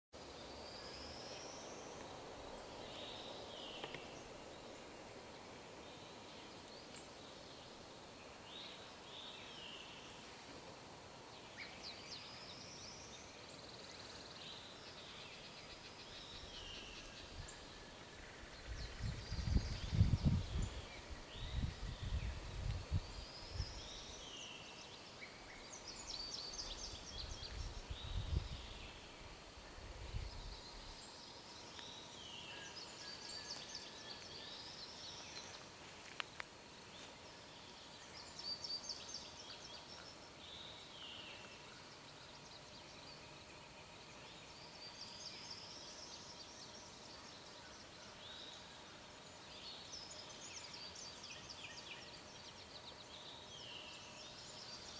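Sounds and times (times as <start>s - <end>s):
songbirds singing: 0.2s - 54.9s
low rumble on microphone: 18.5s - 24.0s, 26.8s - 31.0s.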